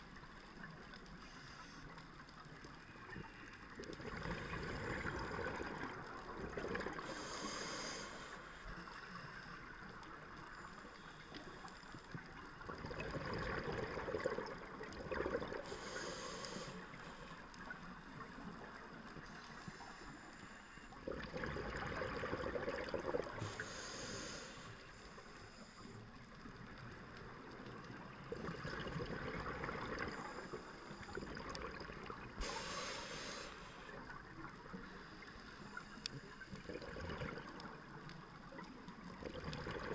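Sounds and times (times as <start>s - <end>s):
exhaled bubbles rushing: 3.9s - 7.0s, 12.6s - 15.7s, 21.0s - 23.4s, 28.3s - 30.2s, 36.7s - 37.8s, 39.2s - 39.9s
regulator breathing hiss: 7.0s - 9.4s, 15.6s - 17.6s, 23.4s - 26.0s, 32.4s - 34.0s.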